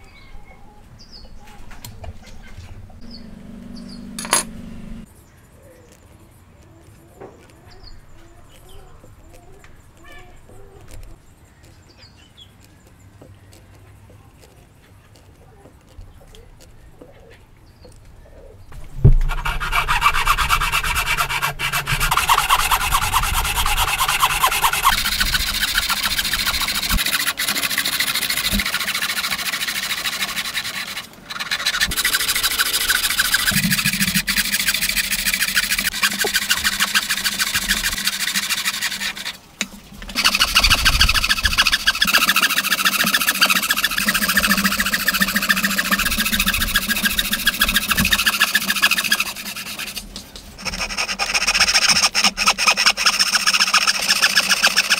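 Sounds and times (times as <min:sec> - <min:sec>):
hand saw cutting timber: 0:18.7 - 0:54.9.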